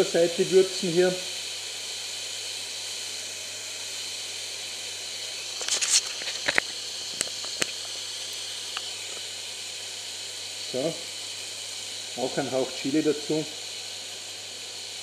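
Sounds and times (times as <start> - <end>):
meat sizzling in a pan: 0.0 - 15.0
sharp clicks and knocks: 5.6 - 8.0.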